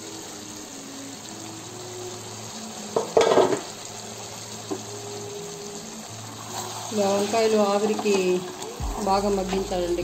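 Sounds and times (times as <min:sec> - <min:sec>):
faint sizzle of vegetables cooking: 0:00.0 - 0:10.0
pot lid clattering: 0:03.0 - 0:03.7.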